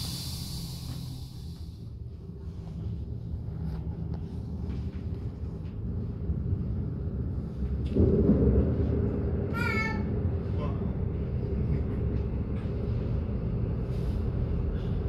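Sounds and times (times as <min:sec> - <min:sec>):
train rumbling inside carriage: 0:00.0 - 0:15.0.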